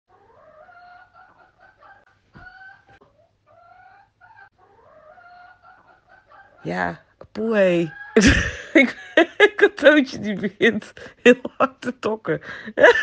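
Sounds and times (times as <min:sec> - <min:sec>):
hens clucking: 0:00.1 - 0:06.8.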